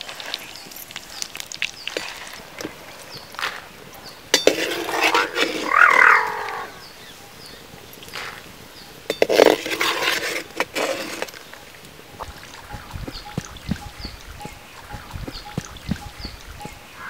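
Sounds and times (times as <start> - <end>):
metal skimmer scraping cooking pot: 4.3 - 6.1, 9.1 - 11.6
loud animal call: 5.0 - 6.8.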